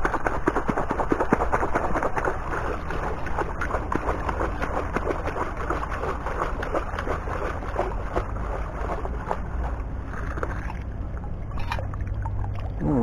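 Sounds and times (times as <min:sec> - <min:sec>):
water splashing around legs: 0:00.0 - 0:13.0.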